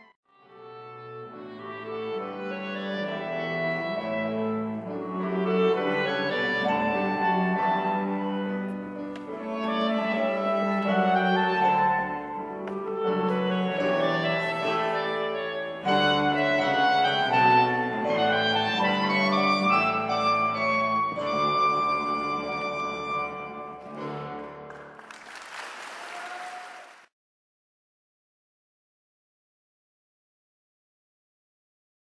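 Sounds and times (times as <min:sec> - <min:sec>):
clarinet cello and piano playing: 0:00.3 - 0:24.7.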